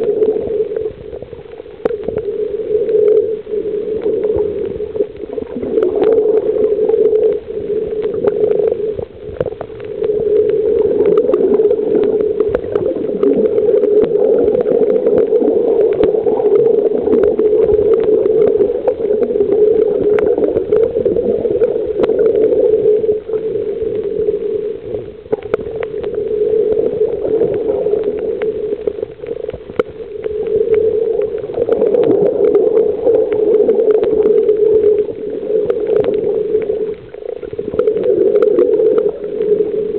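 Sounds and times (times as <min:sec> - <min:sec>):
muffled underwater drone: 0:00.0 - 0:39.9
small underwater clicks and crackles: 0:00.0 - 0:39.9.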